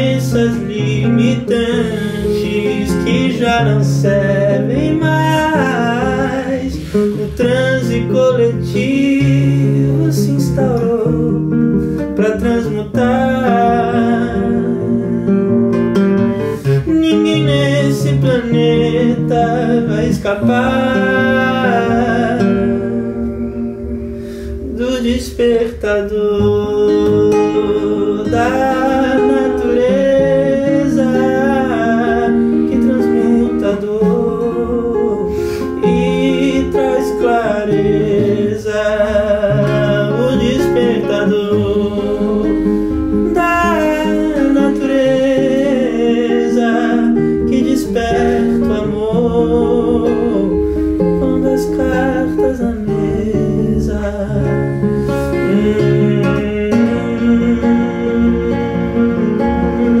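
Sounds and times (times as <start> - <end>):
classical guitar playing: 0.0 - 60.0
man singing without words: 0.0 - 60.0.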